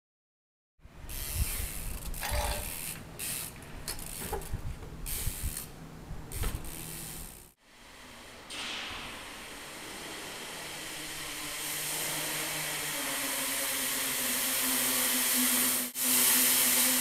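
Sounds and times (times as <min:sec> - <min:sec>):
bicycle rattling and clicking: 0:01.1 - 0:07.6
steady hiss: 0:05.1 - 0:17.0.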